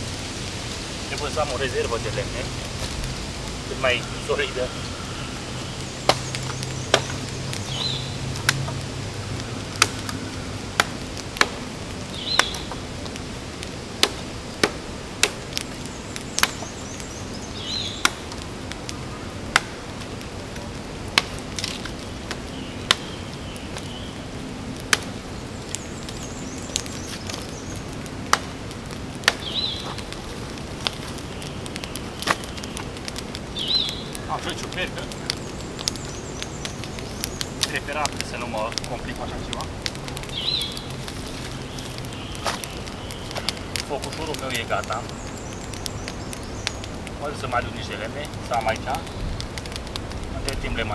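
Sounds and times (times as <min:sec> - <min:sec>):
blade chopping wood: 0:06.0 - 0:07.2, 0:14.0 - 0:15.4.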